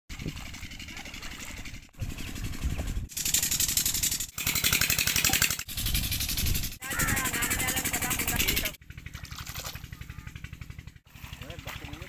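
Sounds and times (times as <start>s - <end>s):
engine chugging: 0.1s - 12.0s.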